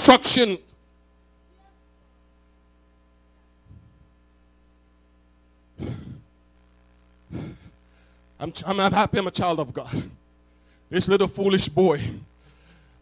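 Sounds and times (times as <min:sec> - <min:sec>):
electrical hum: 0:00.0 - 0:13.0
man breathing into microphone: 0:07.3 - 0:08.4, 0:12.1 - 0:13.0.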